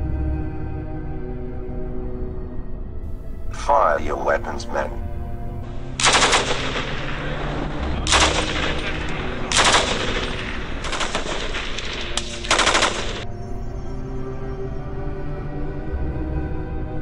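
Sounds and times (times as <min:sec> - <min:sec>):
machine gun firing bursts: 0:06.0 - 0:13.2.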